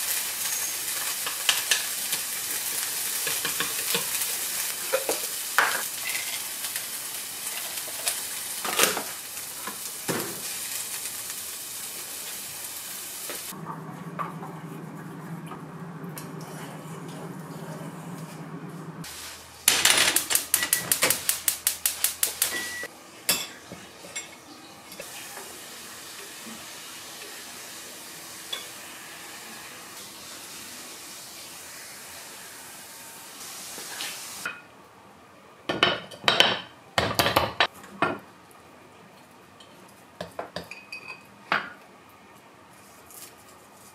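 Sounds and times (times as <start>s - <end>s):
vegetables sizzling in pan: 0.0s - 13.6s, 19.0s - 34.5s
steady low hum: 13.5s - 19.6s.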